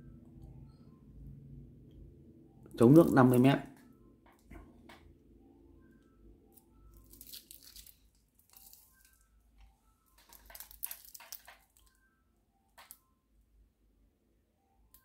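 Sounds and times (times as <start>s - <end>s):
faint tune of high notes: 0.0s - 7.3s
wristwatch rustling and clinking: 6.5s - 12.2s.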